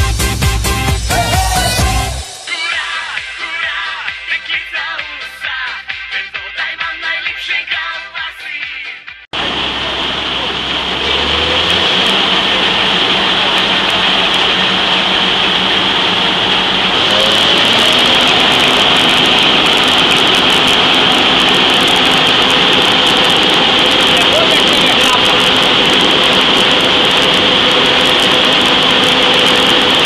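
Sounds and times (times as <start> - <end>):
combine harvester running: 9.4 - 30.0
high mechanical whine: 9.4 - 30.0.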